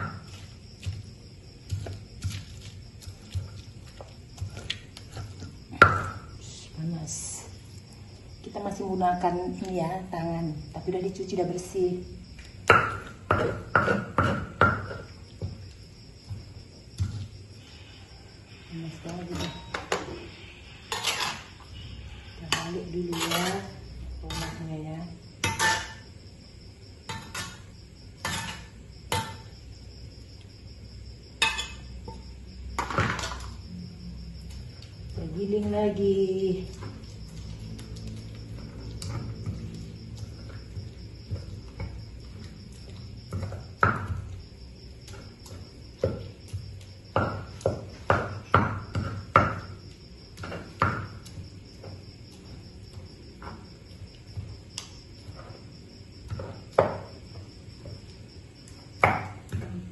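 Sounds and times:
crickets chirping: 0.0 - 59.9
spatula knocking on a wok: 12.6 - 15.6, 46.0 - 49.8.

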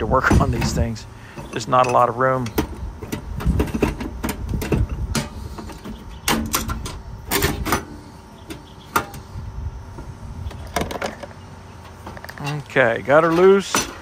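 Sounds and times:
tools clicking and knocking on metal: 0.2 - 9.3, 10.5 - 14.0.

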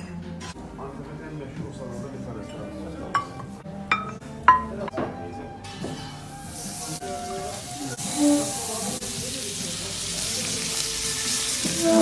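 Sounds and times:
meat sizzling in fat: 6.4 - 12.0.

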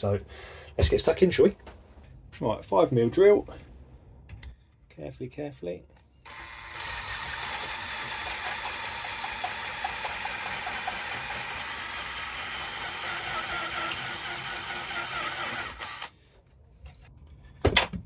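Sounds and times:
electric drill running: 6.3 - 16.2.

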